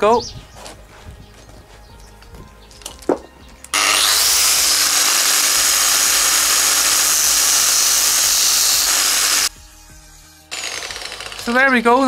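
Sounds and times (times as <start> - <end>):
angle grinder grinding metal: 3.7 - 9.5, 10.5 - 12.0.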